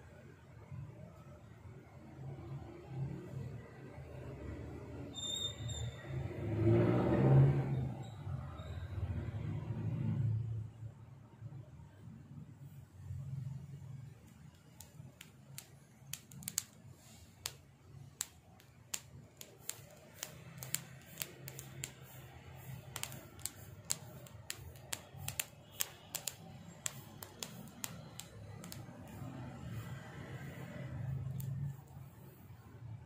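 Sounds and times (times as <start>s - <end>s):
kitten claws clicking on straw mat: 14.2s - 30.1s.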